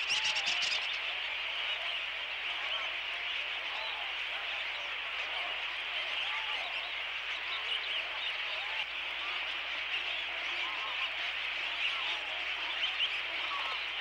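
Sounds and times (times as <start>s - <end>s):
rising-and-falling bird calls: 0.0s - 1.2s
flock of water birds calling: 0.0s - 14.0s.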